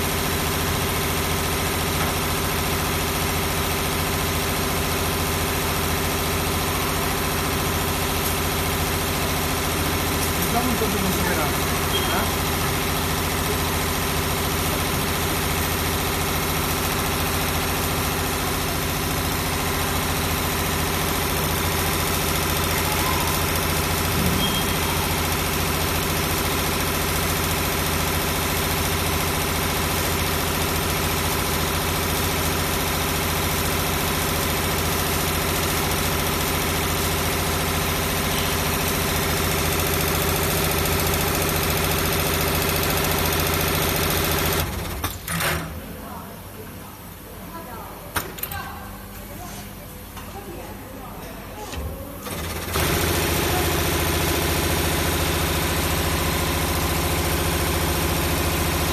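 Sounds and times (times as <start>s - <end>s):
winding machine humming: 5.8s - 44.9s, 52.2s - 58.9s.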